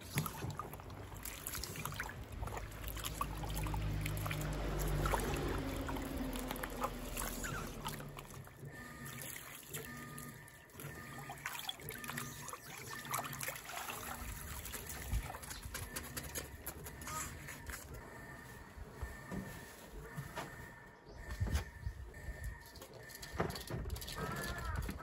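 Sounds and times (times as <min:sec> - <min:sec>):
water trickling into pot: 0:00.0 - 0:08.5
water sloshing and splashing: 0:00.0 - 0:25.0.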